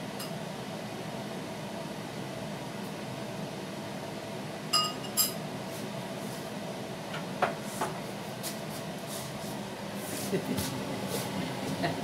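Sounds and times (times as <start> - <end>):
steady low hum: 0.0 - 12.0
dishes clinking: 4.8 - 5.4.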